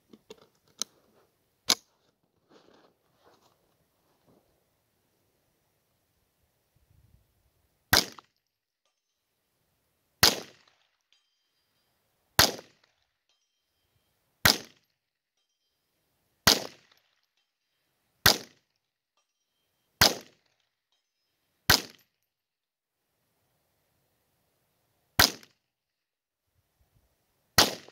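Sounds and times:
rifle shots: 7.9 - 8.2, 10.2 - 10.6, 12.4 - 12.7, 14.4 - 14.8, 16.4 - 16.8, 18.2 - 18.5, 20.0 - 20.3, 25.2 - 25.5, 27.6 - 27.9.

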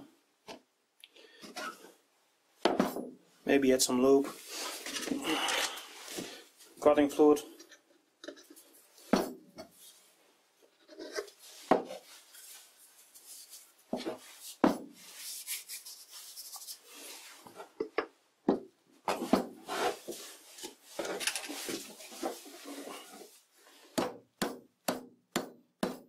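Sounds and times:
wood scraping on wood: 19.1 - 23.9.

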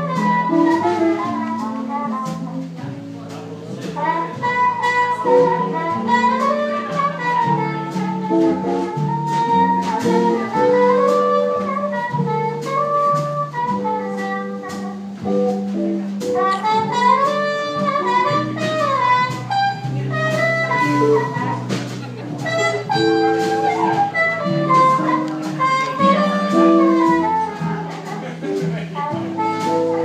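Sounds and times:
trumpet melody: 0.0 - 30.0
upright bass: 0.0 - 30.0
strummed acoustic guitar: 13.6 - 30.0.

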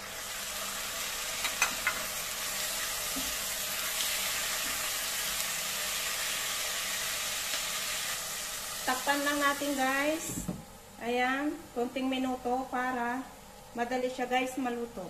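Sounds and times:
chicken sizzling in hot oil: 0.0 - 10.4.

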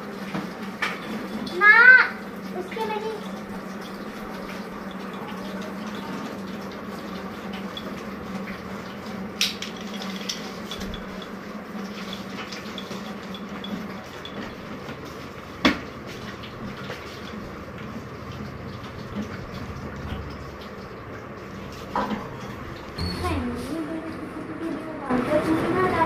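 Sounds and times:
puppies eating from bowls: 0.1 - 23.6
bowls clinking and scraping: 9.4 - 15.1.

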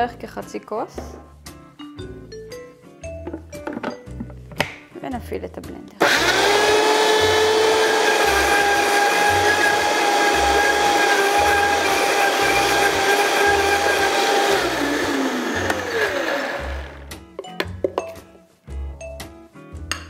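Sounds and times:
blender motor whine: 6.0 - 17.0.

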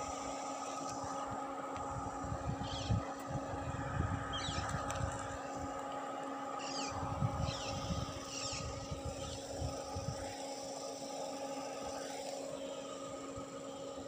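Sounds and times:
motor-like hum: 0.0 - 14.0
wind on microphone: 1.9 - 5.4, 6.9 - 10.4.

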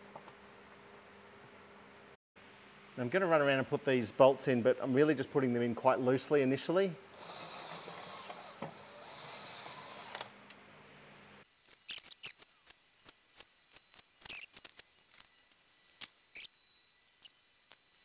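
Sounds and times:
cordless drill motor whir: 7.1 - 10.4.

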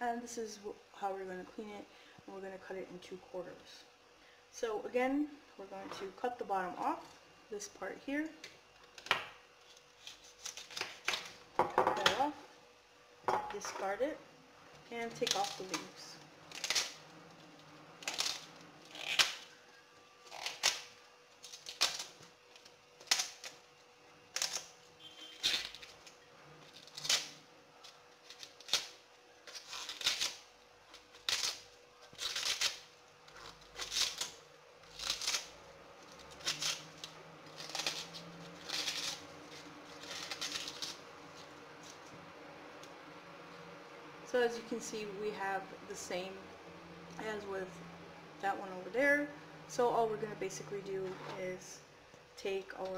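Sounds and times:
artichoke leaves snapping: 8.8 - 11.4, 15.2 - 17.0, 18.0 - 19.5, 20.2 - 23.6, 24.3 - 42.2.

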